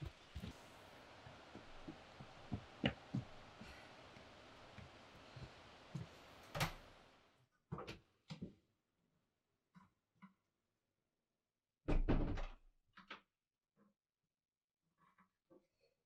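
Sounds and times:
steady background hiss: 0.0s - 7.4s.

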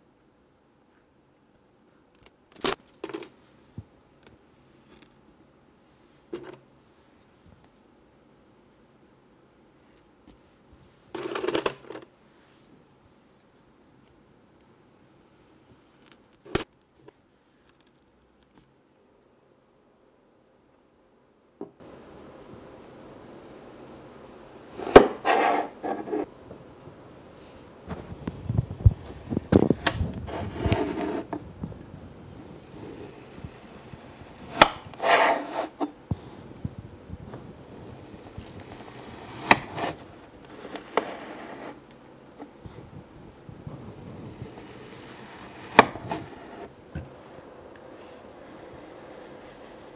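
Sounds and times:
toy tool scraping sand: 24.8s - 26.3s, 29.1s - 31.4s, 32.5s - 35.9s, 38.0s - 41.8s, 44.4s - 46.7s.

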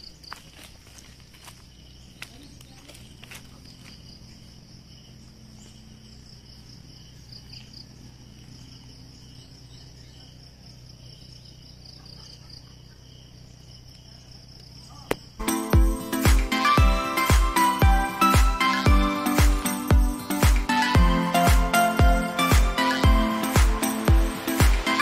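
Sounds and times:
faint low hum: 0.0s - 15.4s
insects chirping: 0.0s - 25.0s.

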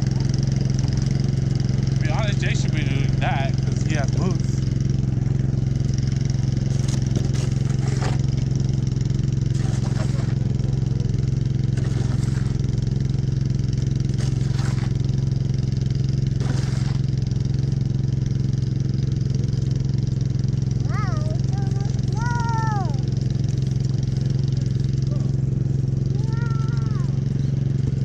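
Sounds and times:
snowblower engine droning: 0.0s - 28.0s
snow shovels scraping: 6.7s - 8.5s, 9.4s - 10.6s, 11.7s - 12.9s, 14.1s - 15.3s, 16.3s - 17.2s.

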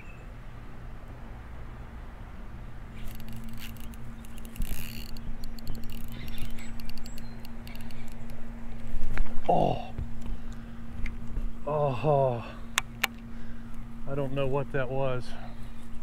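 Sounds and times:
low hum: 0.0s - 16.0s
fishing reel clicking: 3.0s - 8.4s.

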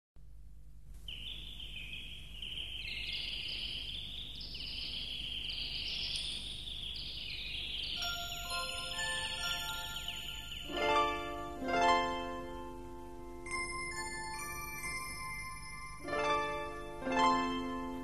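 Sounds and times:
faint low hum: 0.2s - 18.0s
birds chirping and twittering: 1.0s - 11.6s.

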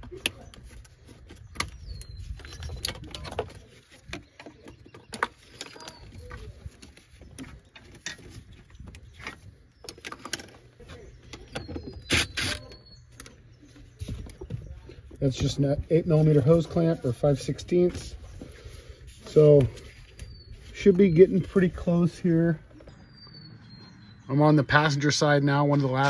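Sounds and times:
bird chirping faintly: 4.0s - 26.0s.

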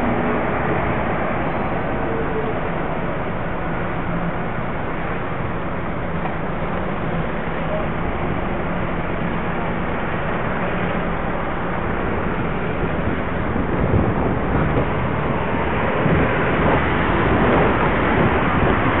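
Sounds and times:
road traffic: 0.0s - 19.0s
wind rushing on microphone: 0.0s - 19.0s.

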